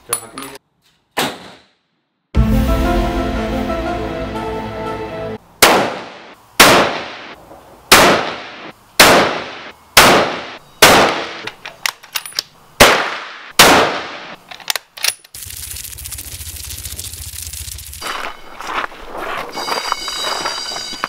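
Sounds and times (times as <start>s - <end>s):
rifle shots with echo: 5.6s - 11.5s, 12.8s - 14.4s.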